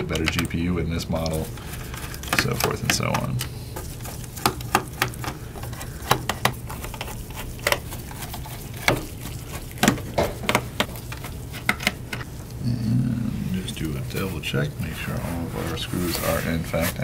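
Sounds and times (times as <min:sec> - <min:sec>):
screws and plastic cover clicking: 0:01.2 - 0:03.5.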